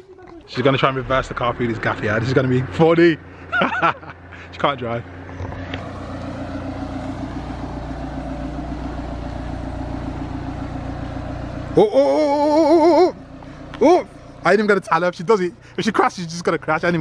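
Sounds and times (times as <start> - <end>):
car engine at low revs: 0.0 - 17.0
man's long wavering vocal sound: 11.8 - 13.2.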